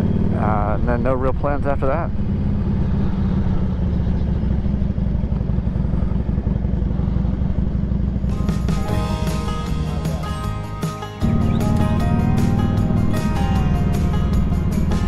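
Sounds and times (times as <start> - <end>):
motorcycle engine running: 0.0 - 15.0
music: 8.2 - 15.0.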